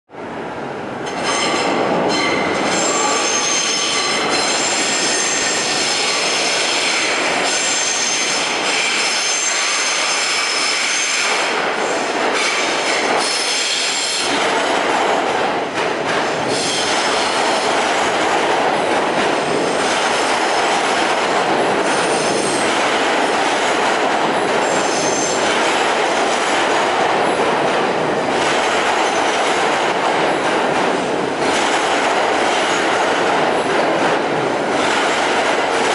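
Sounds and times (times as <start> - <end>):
train wheels rumbling on rails: 0.1 - 35.9
steel wheel squeal: 1.4 - 11.3.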